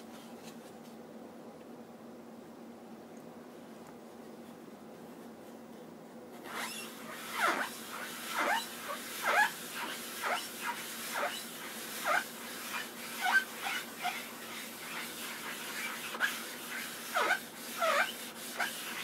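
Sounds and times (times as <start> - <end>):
foam sponge squeaking on paint: 6.4 - 19.0.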